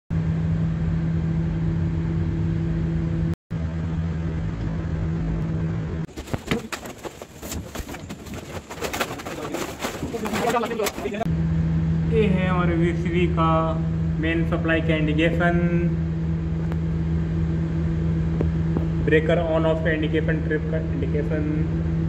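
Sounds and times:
steady low hum: 0.1s - 22.0s
knocks clicks and shuffling: 6.1s - 11.3s.

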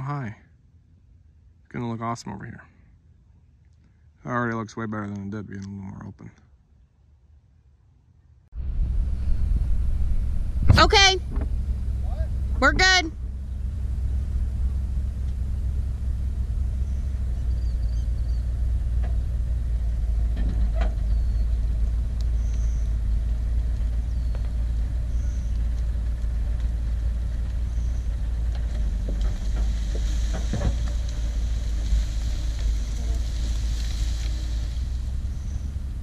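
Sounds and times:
diesel engine running: 8.5s - 36.0s.

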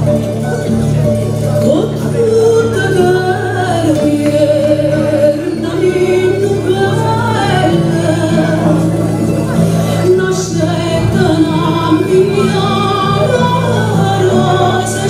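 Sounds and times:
low musical accompaniment: 0.0s - 15.0s
person singing a song: 1.6s - 15.0s.

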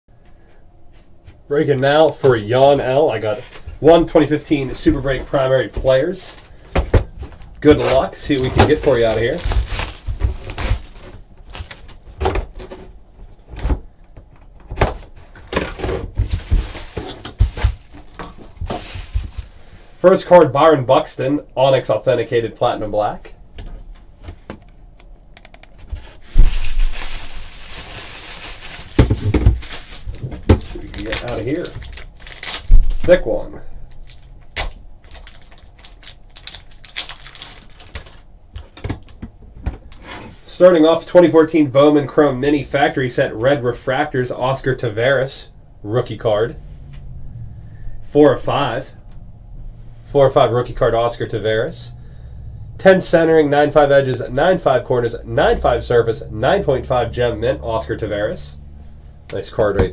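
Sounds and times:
rustling: 3.3s - 13.7s, 15.0s - 19.8s, 25.8s - 33.1s
plastic shrink wrap crinkling: 6.2s - 12.1s, 15.3s - 19.6s, 26.2s - 33.1s, 33.9s - 39.2s.

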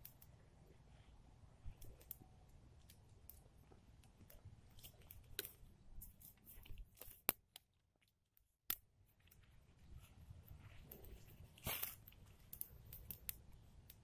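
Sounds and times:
pine needles and twigs crackling: 2.8s - 8.1s, 8.7s - 14.0s
fire snapping: 10.9s - 14.0s.

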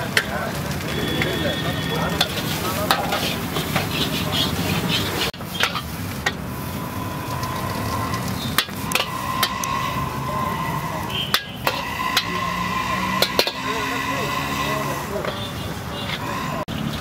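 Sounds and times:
rice sizzling in a wok: 0.0s - 15.1s
metal ladle scraping wok: 1.9s - 17.0s
ladle clanking on wok: 2.2s - 4.2s.

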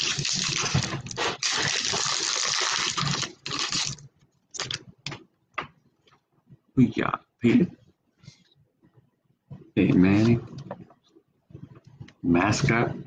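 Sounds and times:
foil wrapper crinkling: 0.0s - 4.8s.

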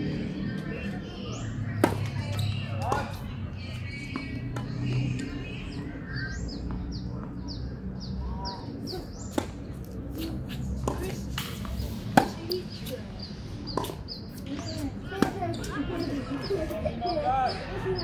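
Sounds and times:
tennis ball rally: 0.7s - 5.6s, 8.5s - 18.0s.

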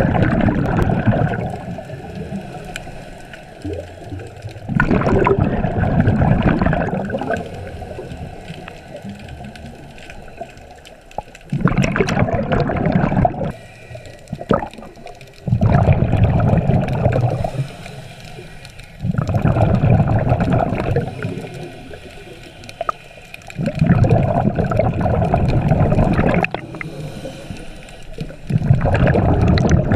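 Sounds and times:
bubbling rush of exhaled bubbles: 0.0s - 13.6s, 14.3s - 17.8s, 19.0s - 29.9s
diver breathing through regulator: 12.6s - 29.6s.

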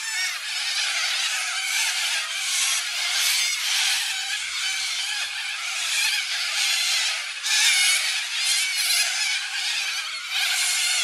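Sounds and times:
flock of birds screeching: 0.0s - 11.0s.

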